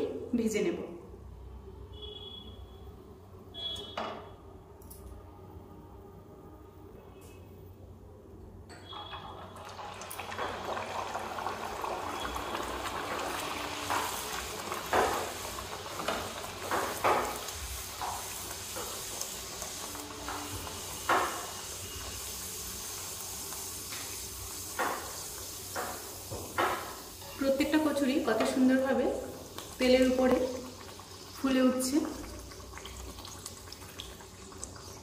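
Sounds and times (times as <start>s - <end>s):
food sizzling in hot oil: 8.9s - 35.0s.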